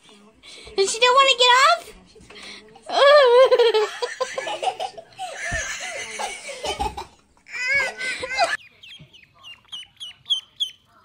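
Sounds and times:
people giggling and laughing: 2.9s - 8.6s
ducklings peeping: 8.6s - 11.0s.

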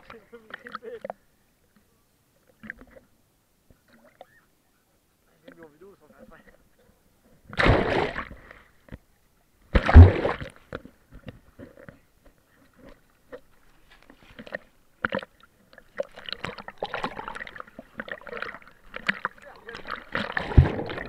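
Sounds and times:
small water splashes: 7.5s - 8.7s, 9.7s - 11.3s, 14.1s - 21.0s
heavy splash with thud: 7.6s - 8.3s, 9.7s - 10.5s, 18.4s - 21.0s
dog paddling water sloshing: 11.7s - 21.0s.

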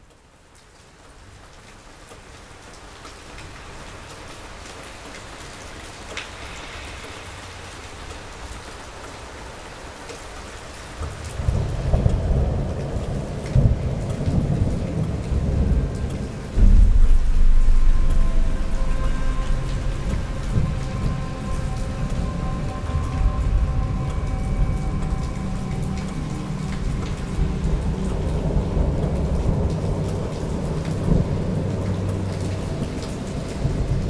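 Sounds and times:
steady rain: 0.0s - 34.0s
thunder rumbling: 11.1s - 33.0s.

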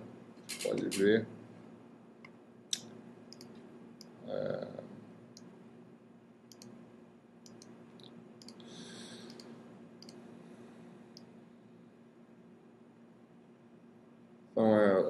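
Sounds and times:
low electrical hum: 0.0s - 15.0s
computer mouse clicks: 2.8s - 4.1s, 6.5s - 6.8s, 7.4s - 7.8s, 8.4s - 10.2s.

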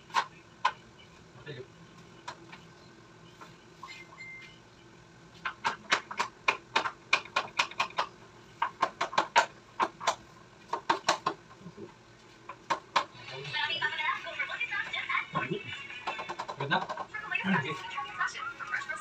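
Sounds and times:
hammer striking nails: 5.6s - 8.1s.

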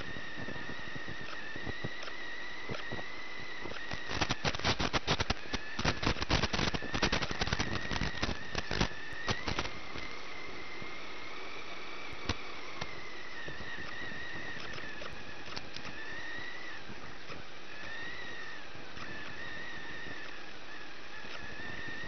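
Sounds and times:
toy truck motor whining: 0.0s - 22.0s
sharp click: 14.6s - 16.0s.

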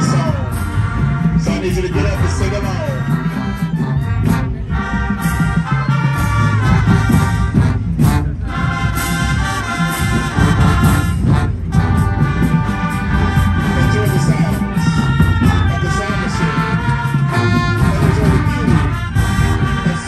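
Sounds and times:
marching band playing: 0.0s - 20.0s.

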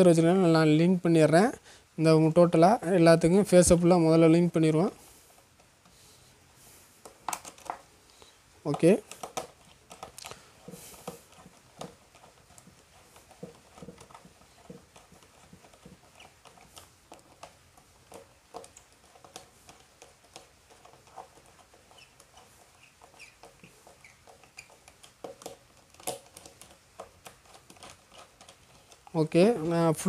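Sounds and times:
screwdriver clicking and scraping: 7.0s - 7.9s, 8.7s - 30.0s
faint squeaks: 21.5s - 24.9s.

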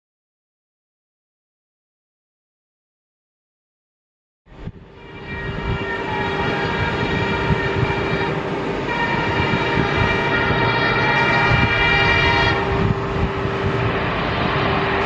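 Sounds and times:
locomotive engine and wheels rumbling: 4.5s - 15.0s
train horn: 4.8s - 15.0s.

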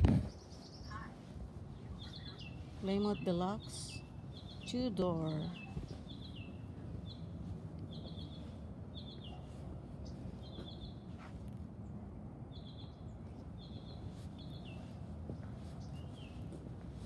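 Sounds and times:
small bird chirping: 0.3s - 7.3s.

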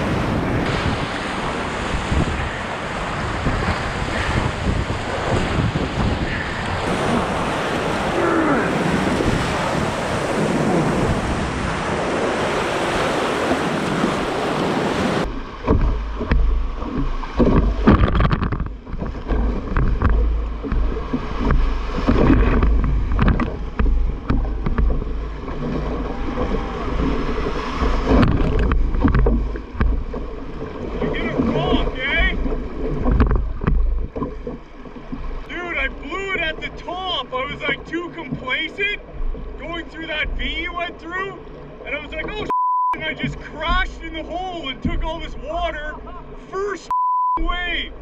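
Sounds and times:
whitewater rapids rushing: 0.0s - 15.8s, 20.6s - 33.0s, 35.4s - 47.9s
wind buffeting microphone: 0.0s - 35.5s
waves splashing against hull: 0.0s - 48.0s.

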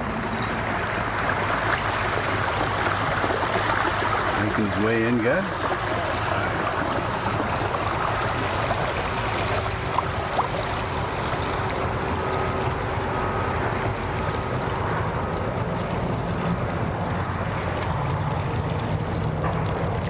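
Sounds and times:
outboard motor running slowly: 0.0s - 20.0s.

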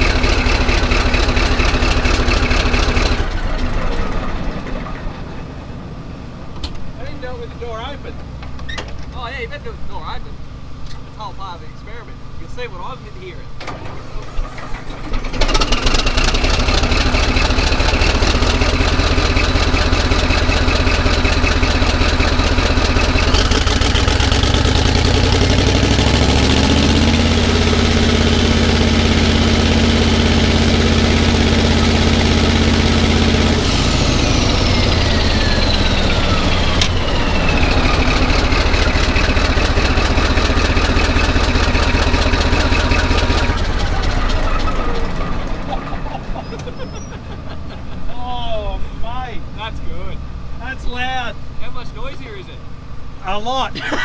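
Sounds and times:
bulldozer diesel engine: 0.0s - 54.0s.

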